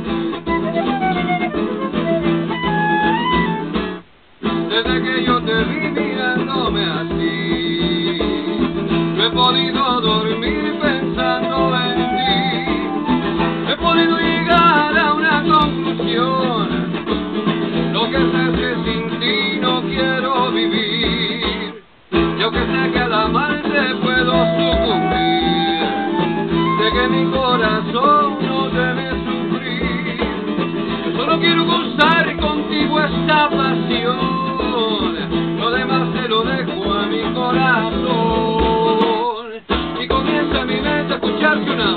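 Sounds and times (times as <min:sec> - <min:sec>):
strummed acoustic guitar: 0:00.0 - 0:41.9
flute melody: 0:00.3 - 0:04.0, 0:11.1 - 0:14.8, 0:24.0 - 0:27.8.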